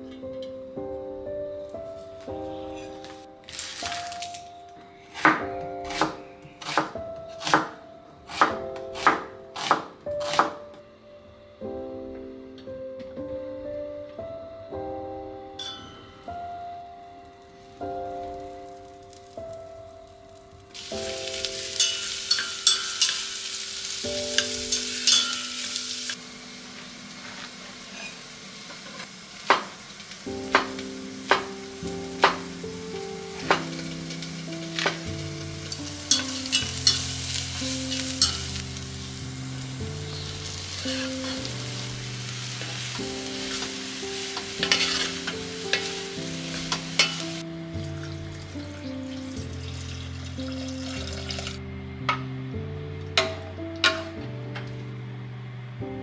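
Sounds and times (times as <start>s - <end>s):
soft background music: 0.0s - 56.0s
food sizzling in a frying pan: 17.7s - 51.6s.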